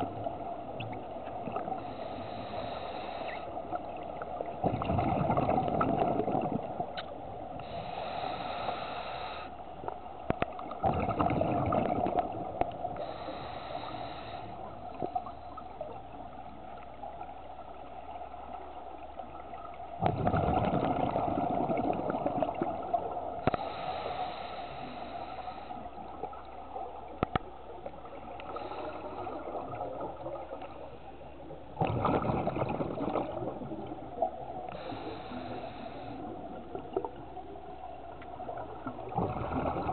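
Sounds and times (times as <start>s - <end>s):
regulator hiss on inhale: 1.6s - 4.0s, 7.5s - 9.9s, 12.7s - 16.0s, 23.4s - 27.1s, 28.4s - 29.5s, 34.6s - 37.0s
bubbles gurgling on exhale: 4.0s - 7.0s, 10.6s - 13.0s, 20.0s - 23.4s, 31.8s - 34.9s, 38.3s - 39.9s.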